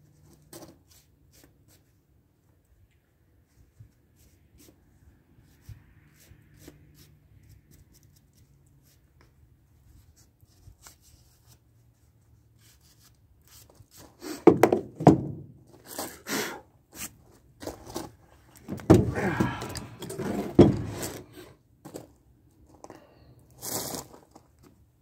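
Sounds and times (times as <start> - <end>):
small clicks and scrapes of hand work: 5.4 - 14.4
heavy metal clunks and scrapes on wood: 18.6 - 22.0.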